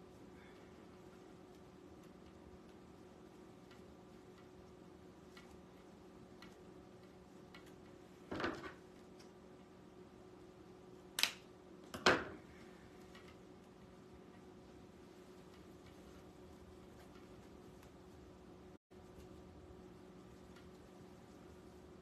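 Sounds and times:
faint steady hum: 0:00.0 - 0:22.0
sharp click: 0:11.2 - 0:11.5.

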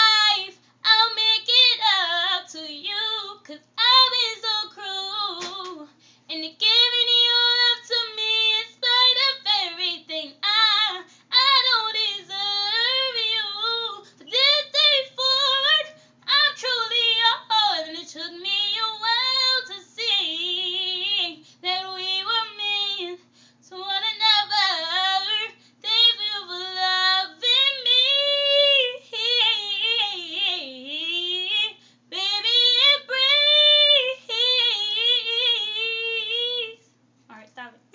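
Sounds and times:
woman singing a cappella: 0:00.0 - 0:37.4
singer breathing: 0:05.9 - 0:06.3, 0:23.2 - 0:23.6, 0:25.6 - 0:25.8, 0:31.8 - 0:32.1.

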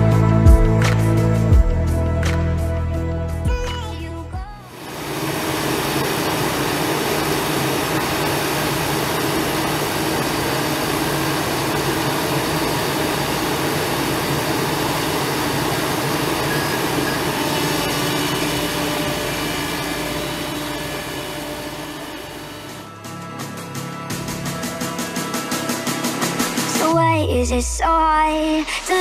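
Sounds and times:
diesel engine drone: 0:04.6 - 0:23.2.

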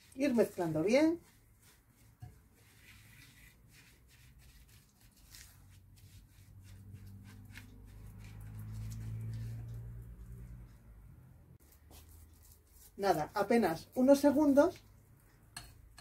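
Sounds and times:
spatula scraping a ceramic bowl: 0:00.0 - 0:09.8.

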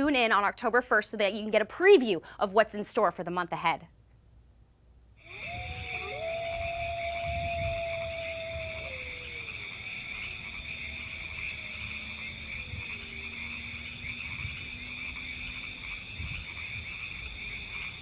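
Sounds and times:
frogs trilling: 0:05.2 - 0:18.0.

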